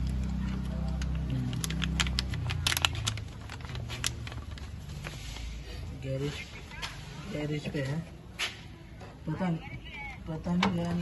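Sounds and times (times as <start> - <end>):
crackles and clicks: 0.0 - 4.8
plastic sachet crinkling: 0.0 - 5.2.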